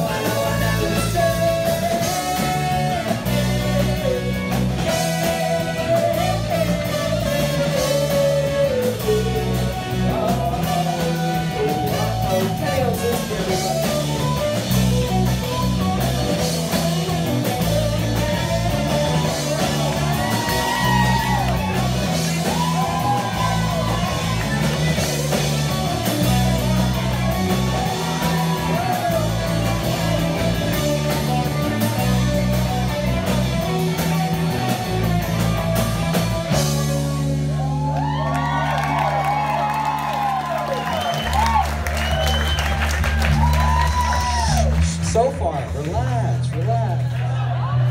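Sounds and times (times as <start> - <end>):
saxophone and trumpet lead line: 0.0 - 37.9
live rock band playing: 0.0 - 47.9.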